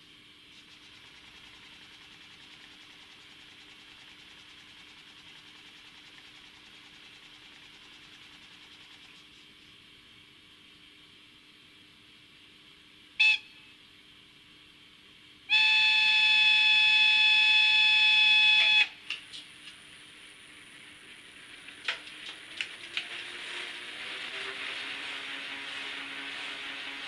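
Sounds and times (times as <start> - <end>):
model locomotive running noise: 0.0 - 9.9, 15.5 - 27.0
locomotive whistle: 13.2 - 13.7, 15.5 - 19.0.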